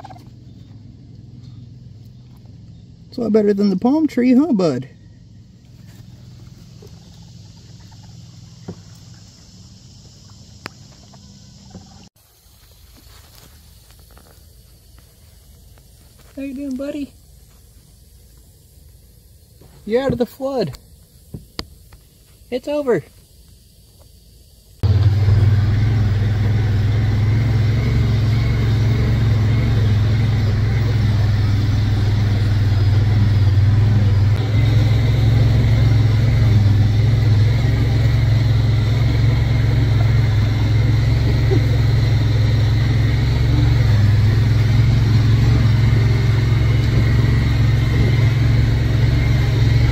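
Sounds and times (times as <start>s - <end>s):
utility vehicle engine droning: 0.0s - 12.2s, 24.8s - 49.9s.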